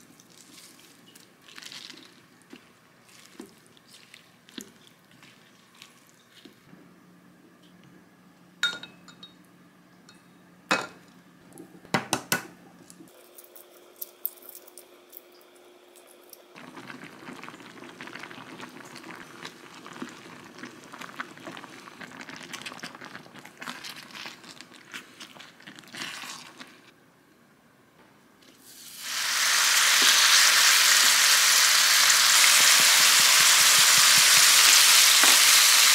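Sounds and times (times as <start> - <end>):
thick sauce bubbling in a pan: 16.6 - 24.5.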